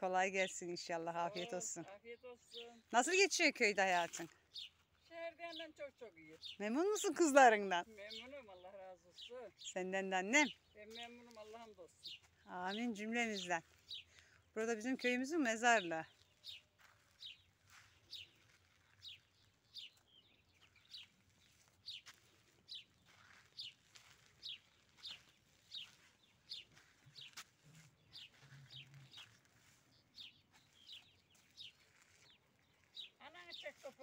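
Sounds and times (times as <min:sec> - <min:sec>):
small bird chirping: 0:15.9 - 0:34.0.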